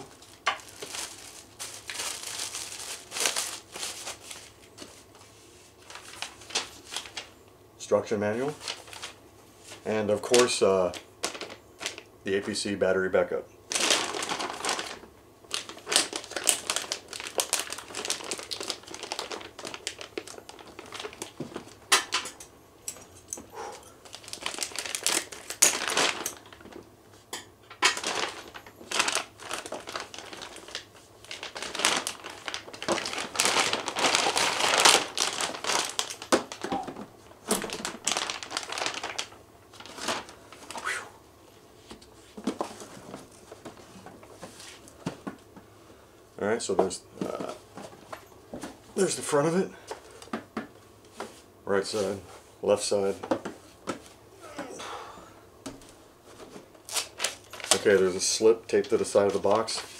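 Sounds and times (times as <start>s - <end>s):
plastic bag crinkling: 0.0s - 5.1s, 5.8s - 7.4s, 8.5s - 12.1s, 13.7s - 22.3s, 23.5s - 26.8s, 27.7s - 40.8s, 56.2s - 59.9s.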